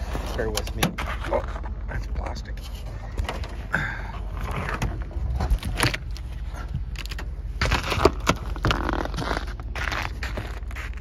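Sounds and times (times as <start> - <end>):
steady low rumble: 0.0 - 11.0
knocks and scrapes on plastic cover: 6.6 - 11.0.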